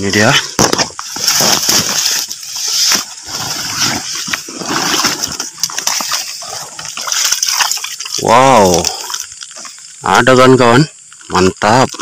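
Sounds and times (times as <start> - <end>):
wet grass rustling: 0.2 - 10.0
water splashing and dripping: 5.0 - 10.0.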